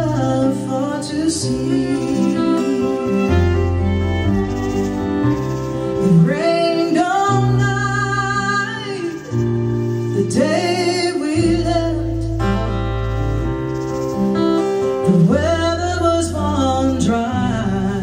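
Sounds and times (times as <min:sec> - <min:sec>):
woman singing folk song: 0:00.0 - 0:04.1, 0:06.0 - 0:12.9, 0:15.0 - 0:18.0
strummed acoustic guitar: 0:00.0 - 0:18.0.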